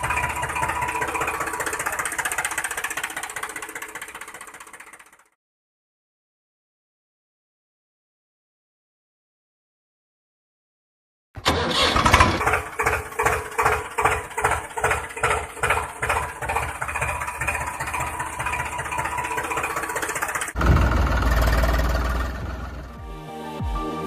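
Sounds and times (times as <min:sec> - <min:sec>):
engine starting and chugging: 0:00.0 - 0:05.4, 0:11.4 - 0:23.0
loud deep engine sound: 0:00.0 - 0:05.4, 0:11.4 - 0:23.0.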